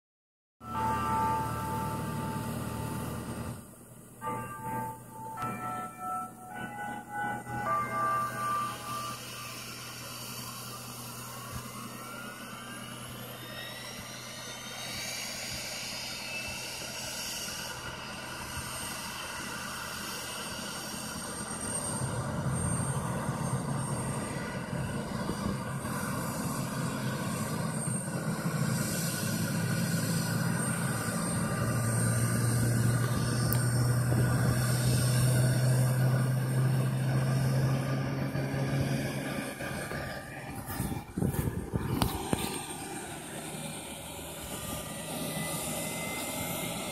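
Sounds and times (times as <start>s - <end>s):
turbofan engine spooling up whine: 0.6s - 46.9s
steady low hum: 28.8s - 46.9s.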